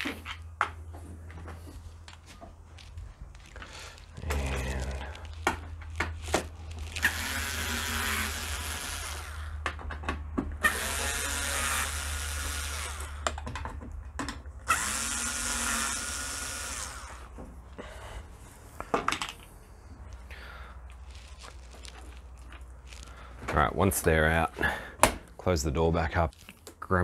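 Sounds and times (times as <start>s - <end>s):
cordless screwdriver running: 6.8s - 9.5s, 10.6s - 13.2s, 14.6s - 17.3s.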